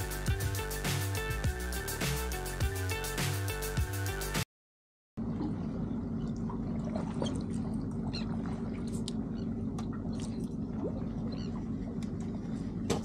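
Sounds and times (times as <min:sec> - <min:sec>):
boat motor humming: 0:00.0 - 0:04.4, 0:05.2 - 0:13.0
water lapping: 0:05.2 - 0:13.0
small splashes against hull: 0:05.3 - 0:13.0.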